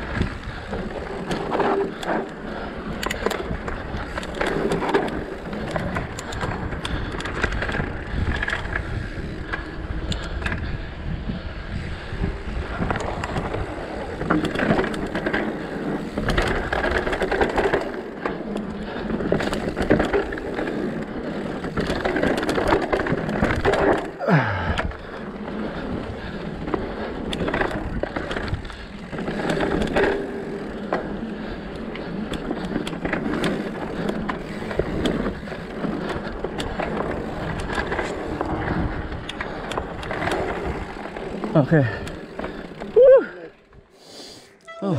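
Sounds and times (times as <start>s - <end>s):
bike rattling and clattering: 0.0s - 44.0s
short falling tone: 44.6s - 44.9s.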